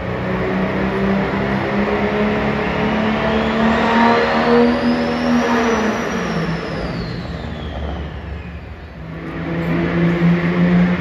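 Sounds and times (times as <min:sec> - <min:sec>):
truck engine running hard: 0:00.0 - 0:11.0
high whistle: 0:02.5 - 0:07.8.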